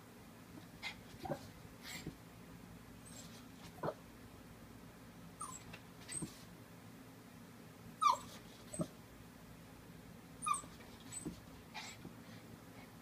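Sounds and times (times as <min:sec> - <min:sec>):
dog whimpering in high squeaks: 0:05.4 - 0:06.3, 0:08.0 - 0:08.9, 0:10.4 - 0:11.9.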